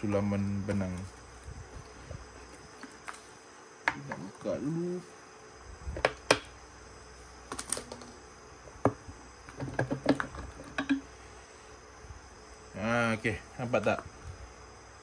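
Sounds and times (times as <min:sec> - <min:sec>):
metal cover clicking and knocking: 0:08.8 - 0:11.1.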